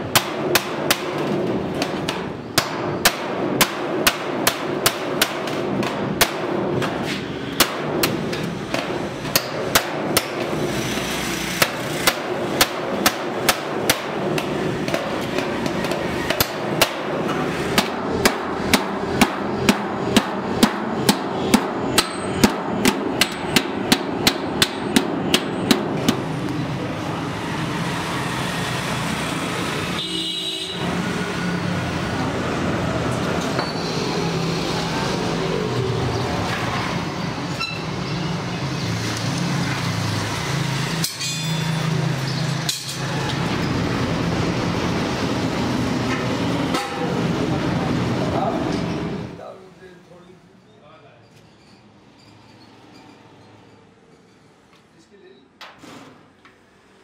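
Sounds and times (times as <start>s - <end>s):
hammer striking chisel on metal: 0.0s - 26.4s, 46.1s - 47.3s.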